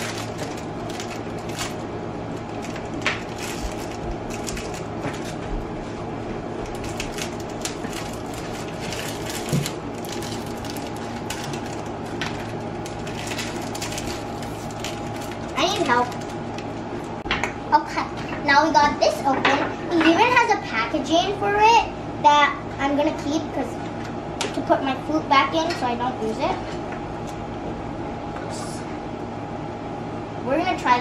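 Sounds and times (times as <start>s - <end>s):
plastic bag crinkling: 0.0s - 5.4s, 6.7s - 17.2s
steady background hum: 0.0s - 31.0s.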